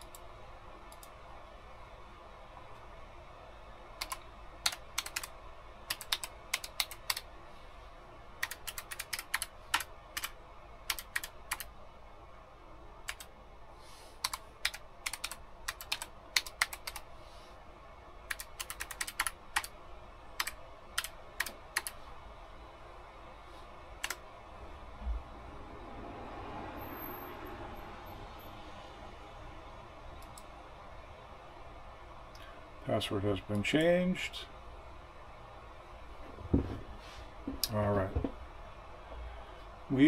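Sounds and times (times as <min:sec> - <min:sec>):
typing on computer keyboard: 0:04.0 - 0:05.3, 0:05.9 - 0:07.3, 0:08.4 - 0:11.7, 0:13.1 - 0:13.3, 0:14.2 - 0:17.1, 0:18.3 - 0:19.7, 0:20.4 - 0:22.0.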